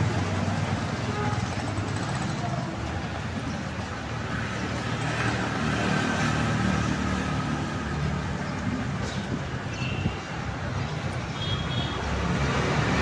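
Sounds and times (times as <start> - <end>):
vehicle engine running close: 0.0 - 9.6
hum of town traffic: 0.0 - 13.0.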